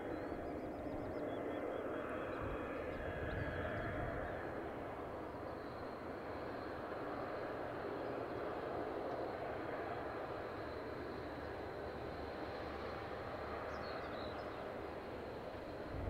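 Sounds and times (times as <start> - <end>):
distant turboprop engines idling: 0.0 - 16.0
faint high whine: 0.0 - 16.0.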